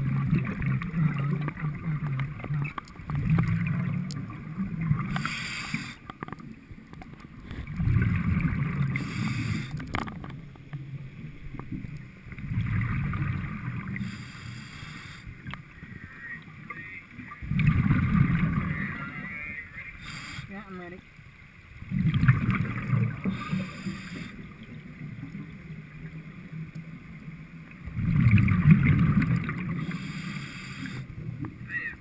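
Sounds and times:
exhaled bubbles rushing: 0.0 - 5.8, 7.4 - 10.4, 11.8 - 14.2, 17.3 - 19.3, 21.8 - 26.2, 27.8 - 31.4
high hiss of regulator air: 5.1 - 6.0, 9.0 - 9.8, 14.0 - 15.3, 20.0 - 20.5, 23.3 - 24.4, 29.8 - 31.1.

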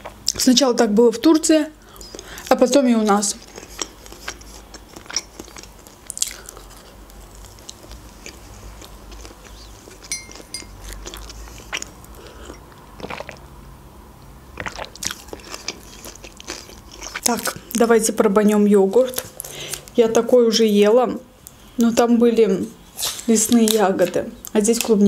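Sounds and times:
person chewing food: 3.4 - 13.5, 14.6 - 17.8.

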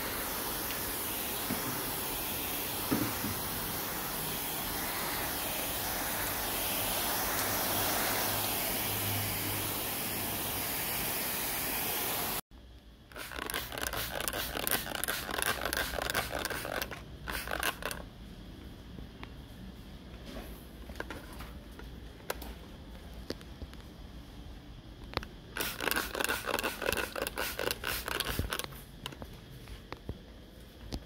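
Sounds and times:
water mist spraying hiss: 0.0 - 12.4, 13.2 - 18.0, 25.5 - 28.7
spray bottle squirts: 13.1 - 18.0, 25.6 - 28.8.

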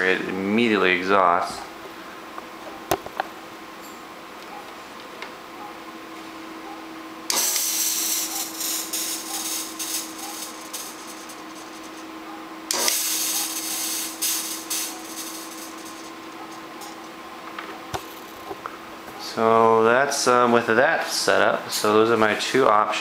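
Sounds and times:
computer cooling fans humming: 0.0 - 23.0
fog machine hissing: 7.3 - 17.0.

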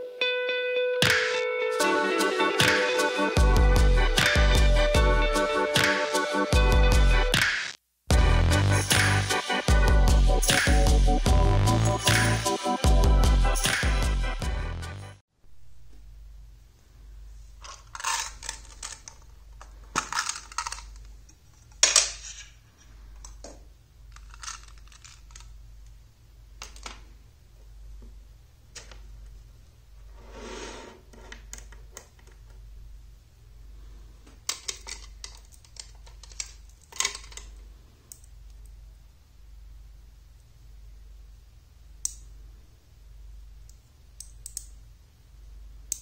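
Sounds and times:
low steady hum: 15.4 - 46.0
magnets clicking together: 34.4 - 38.7, 42.0 - 42.3, 43.6 - 44.8.

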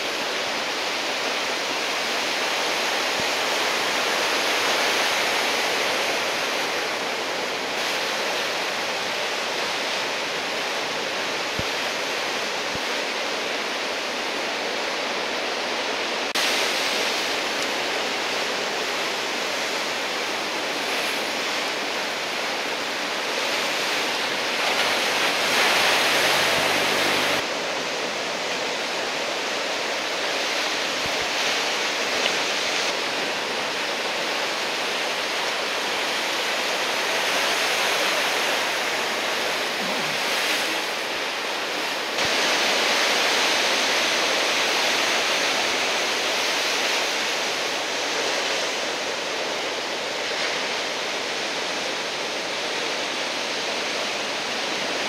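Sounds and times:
surf breaking on shore: 0.0 - 55.0.

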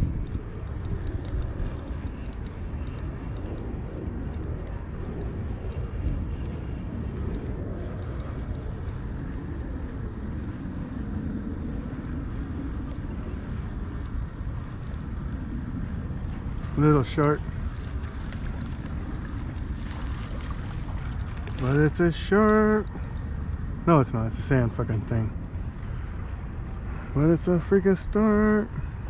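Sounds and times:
faint light ticks: 0.0 - 10.7, 11.5 - 13.4, 14.0 - 14.3, 17.2 - 23.4
wind on microphone: 0.0 - 29.0.

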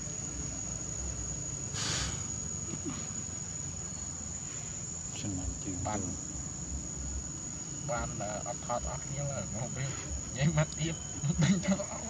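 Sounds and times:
insects droning: 0.0 - 12.0
brief hiss: 1.7 - 3.0.

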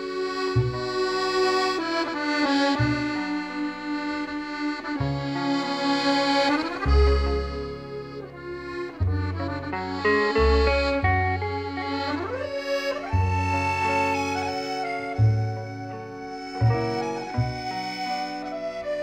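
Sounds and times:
slow music with held chords: 0.0 - 19.0
bass note: 0.5 - 2.2, 6.4 - 17.7.

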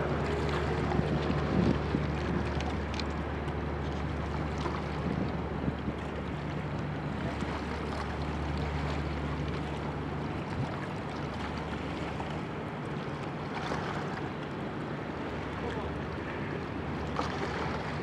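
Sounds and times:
wind on microphone: 0.0 - 3.0, 4.9 - 6.2
barge engine drone: 0.0 - 18.0
river water lapping: 0.0 - 18.0.

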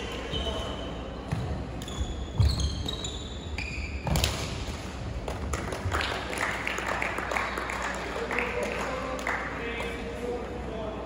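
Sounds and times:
shoe squeaks: 0.2 - 1.2, 1.8 - 4.2.

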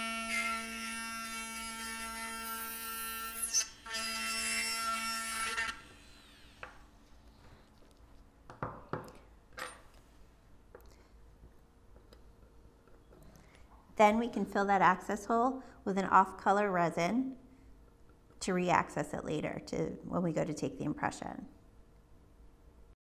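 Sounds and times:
dental drill whining: 0.0 - 6.9.

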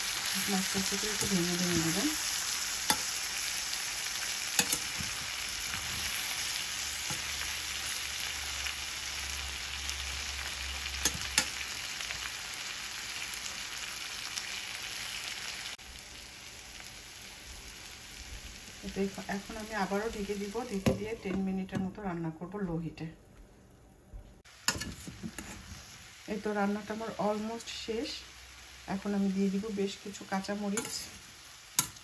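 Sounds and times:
fish sizzling in a pan: 0.0 - 21.1, 24.5 - 32.0.

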